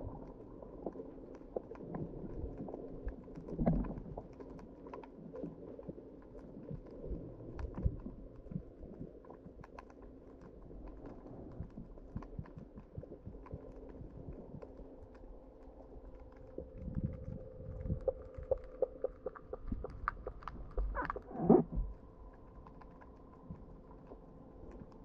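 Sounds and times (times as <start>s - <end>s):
underwater clicks and crackles: 0.0s - 25.0s
muffled low hum: 5.6s - 25.0s.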